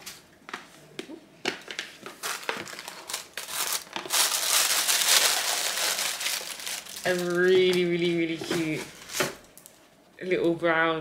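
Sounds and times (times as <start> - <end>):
tissue paper rustling: 2.1 - 9.4.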